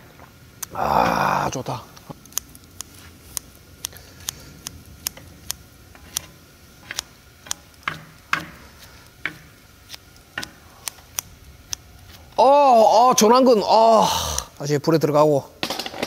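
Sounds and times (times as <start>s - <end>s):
metal utensils scraping griddle pan: 5.9s - 7.0s.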